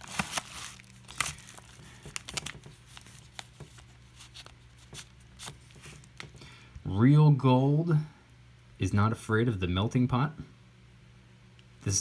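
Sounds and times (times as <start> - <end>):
paper rustling and crinkling: 0.0 - 6.4.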